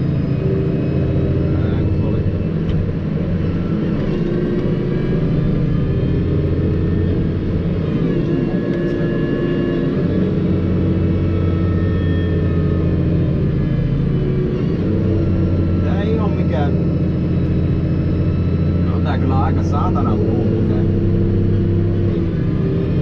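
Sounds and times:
thin whine: 0.0s - 23.0s
tractor engine drone: 0.0s - 23.0s.

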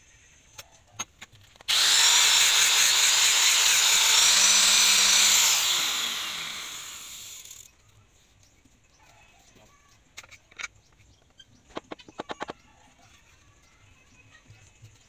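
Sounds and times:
power tool whining: 1.7s - 7.7s.

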